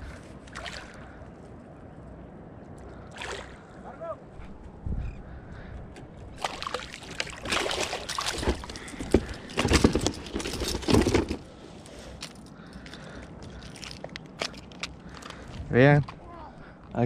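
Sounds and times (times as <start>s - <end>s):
water splashing: 0.5s - 1.2s, 3.1s - 3.8s, 6.4s - 9.0s.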